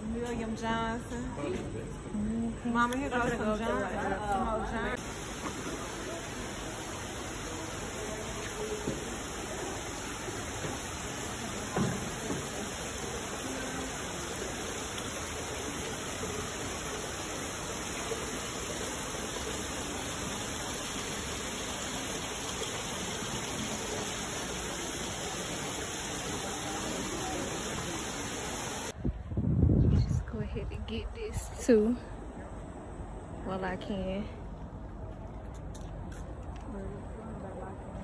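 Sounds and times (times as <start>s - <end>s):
water rushing down a wall: 5.0s - 29.0s.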